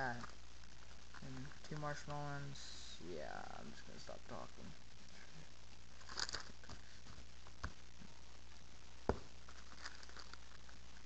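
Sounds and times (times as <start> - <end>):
low steady hum: 0.0 - 11.0
plastic sleeve crinkling: 6.0 - 7.6, 9.3 - 11.0.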